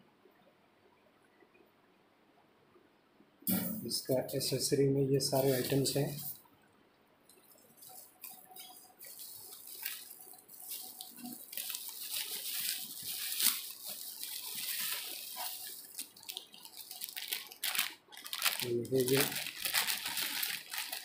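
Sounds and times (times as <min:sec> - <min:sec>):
plastic packaging crinkling: 0:05.2 - 0:06.4, 0:07.3 - 0:21.0.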